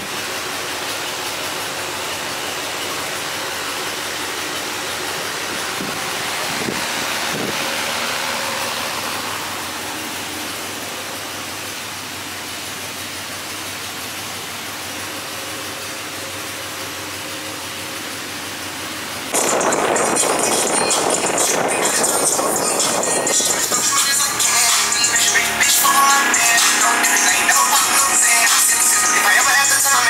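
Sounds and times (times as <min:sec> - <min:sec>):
steady rushing noise: 0:05.0 - 0:10.4, 0:19.3 - 0:25.4.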